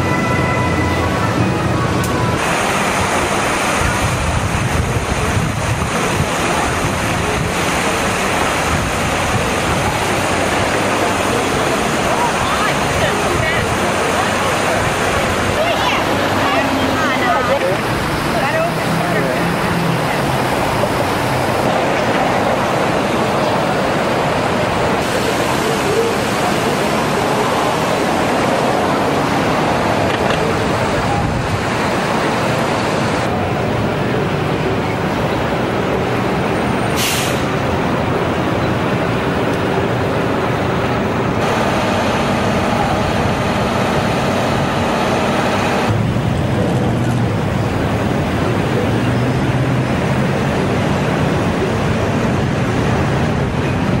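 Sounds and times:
busy road traffic roar: 0.0s - 54.0s
fountain water splashing into pool: 0.0s - 54.0s
wind buffeting microphone: 1.1s - 16.4s.

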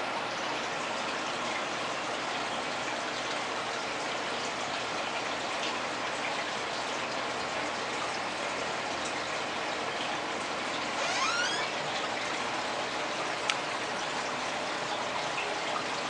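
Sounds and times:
aquarium air bubbling: 8.7s - 15.2s.

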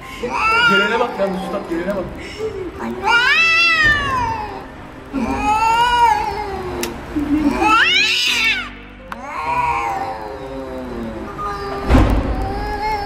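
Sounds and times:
cats yowling: 0.2s - 1.9s, 2.7s - 13.0s.

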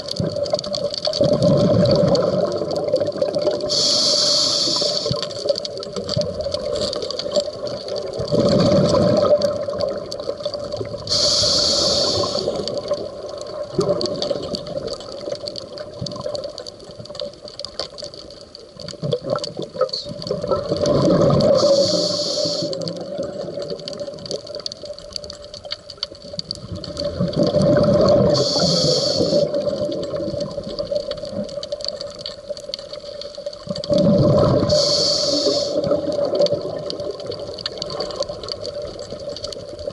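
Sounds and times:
exhaled bubbles gurgling: 0.0s - 39.9s
regulator hiss on inhale: 3.6s - 5.5s, 11.0s - 13.0s, 21.5s - 23.1s, 28.1s - 29.8s, 34.6s - 36.2s.

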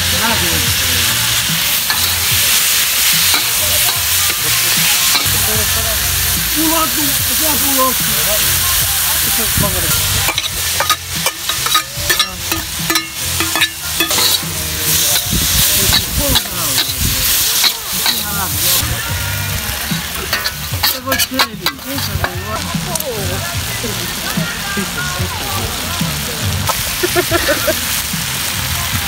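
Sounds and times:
hot oil sizzling: 0.0s - 29.0s
metal spatula scraping wok: 0.7s - 5.6s, 9.3s - 19.0s, 20.0s - 23.0s.

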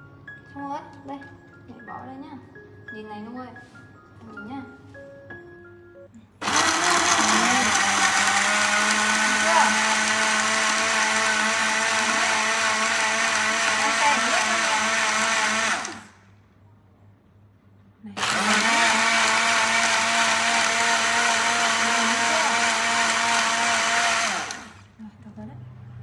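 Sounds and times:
electric blender running: 6.4s - 16.2s, 18.2s - 24.9s.

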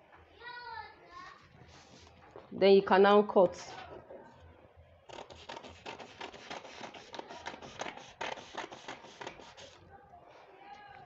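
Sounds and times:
scissors snipping paper: 5.1s - 9.8s.

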